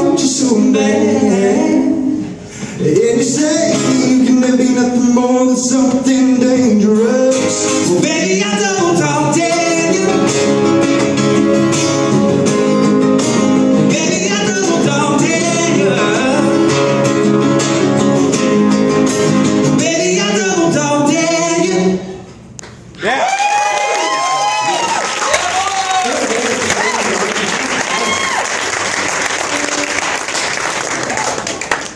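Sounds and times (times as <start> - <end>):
man singing: 0.0 - 10.9, 13.8 - 17.0, 19.7 - 22.2
acoustic guitars strummed: 0.0 - 22.2.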